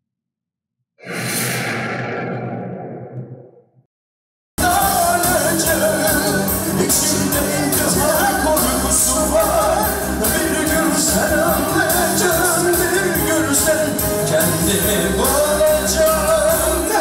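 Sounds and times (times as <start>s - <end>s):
live folk dance band: 4.6s - 17.0s
man singing: 4.6s - 17.0s.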